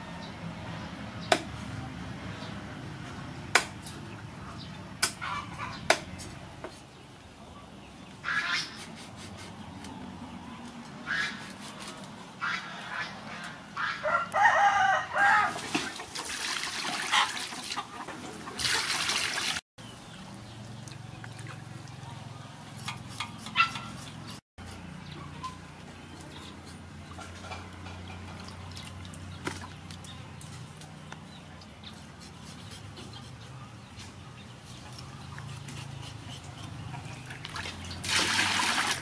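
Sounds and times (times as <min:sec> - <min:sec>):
rooster crowing: 0:14.0 - 0:15.6
water splashing in a bowl: 0:15.5 - 0:19.6, 0:37.2 - 0:39.0
chickens clucking: 0:17.1 - 0:18.9.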